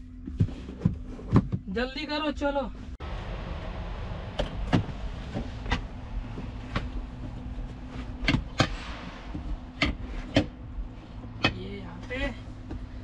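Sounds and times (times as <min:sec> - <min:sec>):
knocks and clicks of handling: 0:04.4 - 0:10.7.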